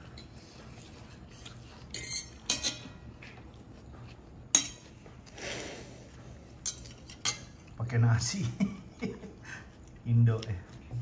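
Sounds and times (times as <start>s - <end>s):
cutlery clinking on plates: 0.0s - 3.2s, 4.5s - 5.0s, 6.5s - 7.8s.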